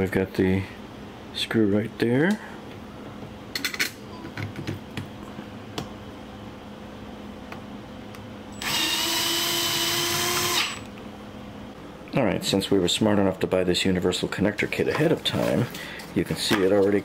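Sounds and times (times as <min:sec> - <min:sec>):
power drill driving screw: 0:08.6 - 0:10.9.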